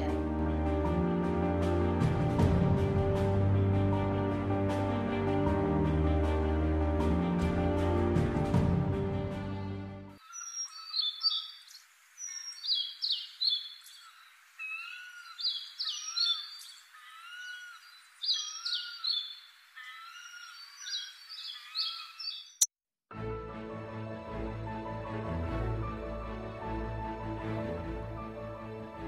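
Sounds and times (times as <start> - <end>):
music: 0.0 - 10.2, 23.1 - 29.0
birds chirping and twittering: 10.2 - 22.7.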